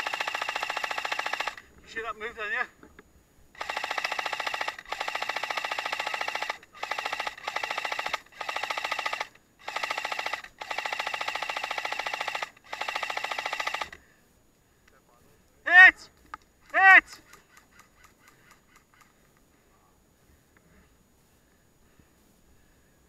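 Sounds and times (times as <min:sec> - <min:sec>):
airsoft rifle full auto bursts: 0:00.0 - 0:01.6, 0:03.6 - 0:14.0.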